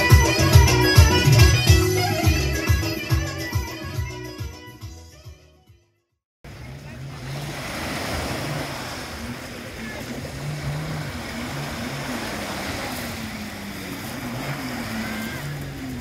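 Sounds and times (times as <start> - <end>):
low wavering hum: 6.5 - 16.0
waves washing over pebbles: 6.5 - 16.0.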